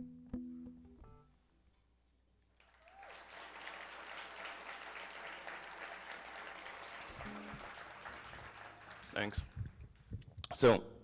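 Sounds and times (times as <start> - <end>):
audience applause: 2.6 - 10.1.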